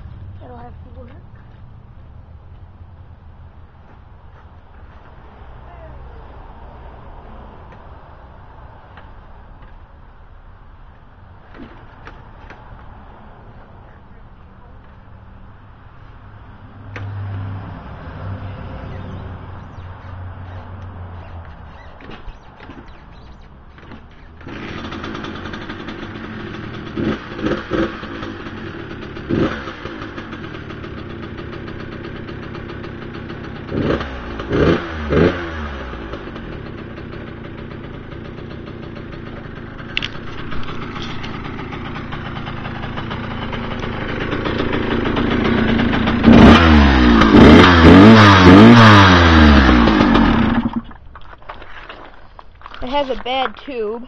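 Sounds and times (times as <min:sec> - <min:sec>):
dirt-bike engine revving: 0:17.0 - 0:50.9
engine kick-started: 0:18.8 - 0:28.6, 0:36.6 - 0:51.1
dirt-bike engine idling: 0:21.2 - 0:34.5, 0:36.0 - 0:51.0.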